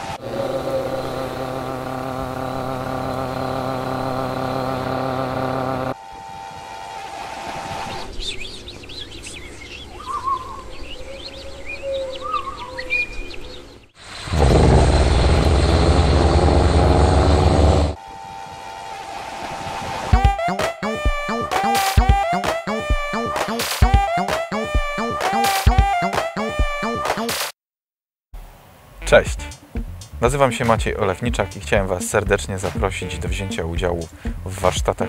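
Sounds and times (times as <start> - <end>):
mechanical hum: 0.0 - 11.4, 13.7 - 20.2
birds chirping: 6.0 - 15.5
low engine rumble: 14.0 - 19.5.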